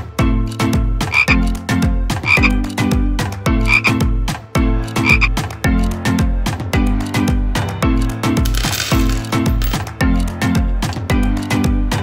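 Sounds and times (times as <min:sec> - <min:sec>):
upbeat background music: 0:00.0 - 0:12.0
frog croak: 0:01.0 - 0:01.5, 0:02.2 - 0:02.6, 0:03.6 - 0:04.0, 0:05.0 - 0:05.4.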